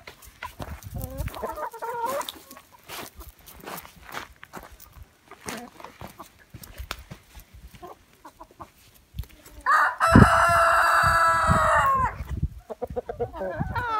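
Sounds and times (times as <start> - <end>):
soft hen clucks: 0.4 - 3.3, 7.6 - 13.9
rooster crowing: 9.6 - 12.2.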